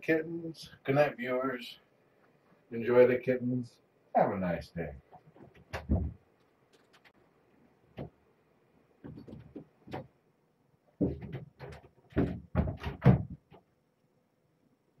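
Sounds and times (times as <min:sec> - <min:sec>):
dull knocks and bumps: 0:05.3 - 0:06.2, 0:09.0 - 0:10.1, 0:11.0 - 0:13.7.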